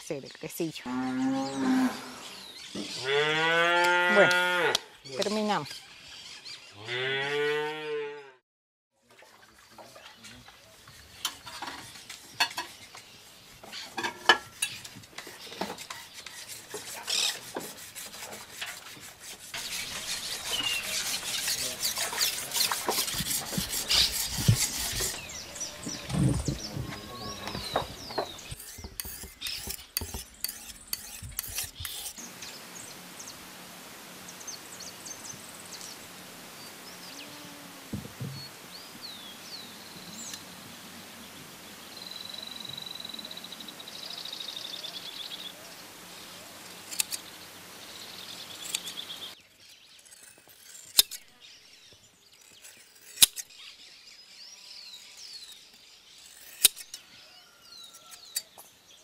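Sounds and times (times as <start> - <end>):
birds calling: 0.0 - 7.5, 9.6 - 33.5
hand scraping strokes: 10.2 - 32.2
blade snipping hair: 28.4 - 32.2, 46.8 - 47.3, 49.8 - 51.5, 52.3 - 53.6, 56.2 - 57.0.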